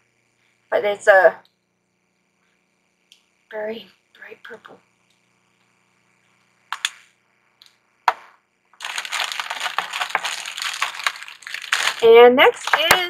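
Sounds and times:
packaging crinkling and rustling: 8.8s - 13.0s
sharp clicks of small items: 8.8s - 13.0s.

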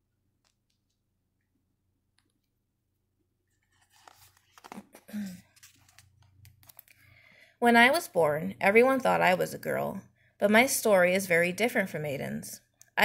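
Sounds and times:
book page turning: 3.5s - 6.9s
paper rustling: 3.5s - 6.9s.

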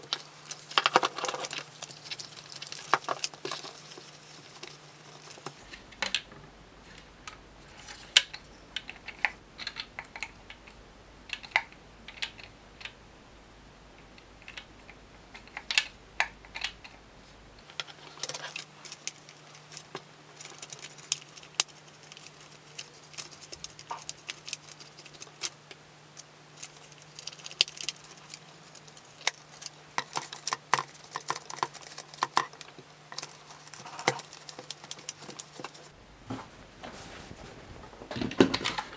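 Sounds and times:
plastic parts clicking and knocking: 0.0s - 6.4s, 7.3s - 13.0s, 17.6s - 35.9s, 38.1s - 38.9s
cloth rubbing on plastic: 35.6s - 38.1s.

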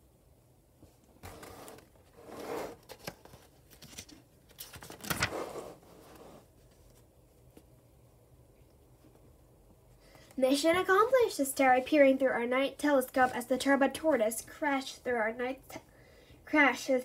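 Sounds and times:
book pages rustling: 1.2s - 7.8s
paper clicks: 2.9s - 5.3s.

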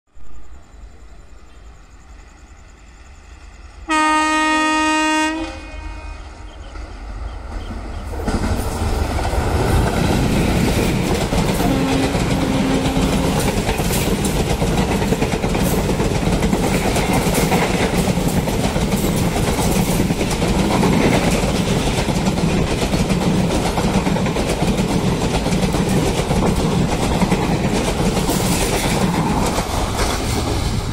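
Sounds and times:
train horn blast: 3.8s - 6.6s, 11.6s - 13.5s
train wheels clattering over rail joints: 7.5s - 30.9s.

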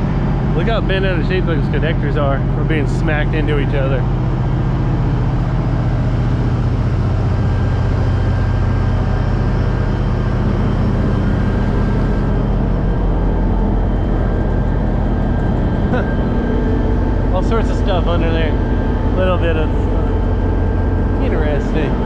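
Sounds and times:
low engine drone: 0.0s - 22.0s.

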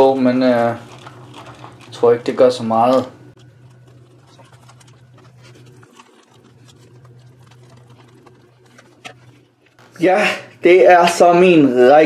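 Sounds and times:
steady low hum: 0.0s - 12.0s
spoons scraping plastic cups: 0.4s - 9.8s.

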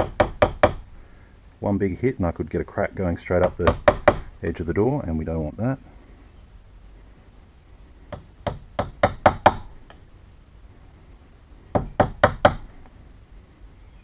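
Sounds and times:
hammer tapping chisel into wood: 0.0s - 0.8s, 3.4s - 4.3s, 8.1s - 10.0s, 11.8s - 12.7s.

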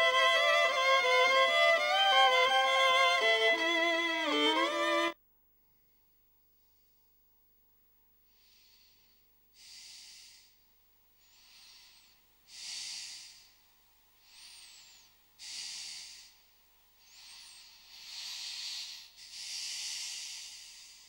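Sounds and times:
person breathing deeply: 8.3s - 13.6s, 14.2s - 21.0s.

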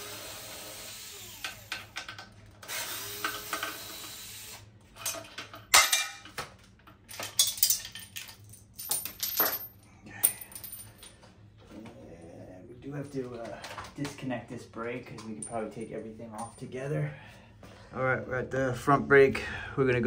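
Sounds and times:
cordless drill spinning: 0.0s - 4.7s
metal clinks and clatter: 7.1s - 11.2s.

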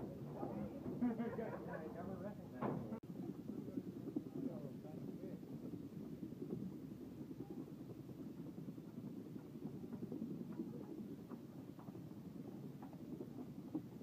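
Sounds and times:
wheels rolling on wooden planks: 0.0s - 14.0s
footsteps on wooden planks: 5.7s - 14.0s.

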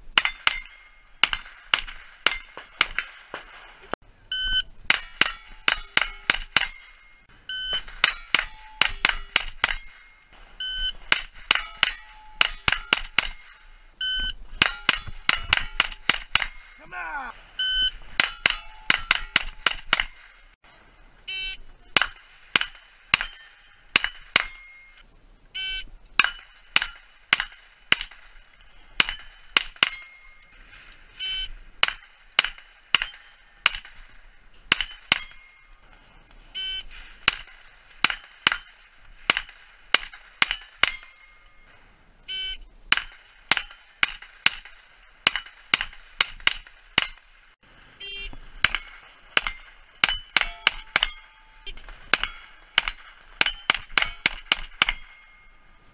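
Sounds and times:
steel plates ringing: 0.0s - 20.6s, 21.3s - 35.9s, 36.5s - 55.9s
rapid gunshots: 0.1s - 4.0s, 14.5s - 17.3s, 37.2s - 41.2s, 48.4s - 55.3s.

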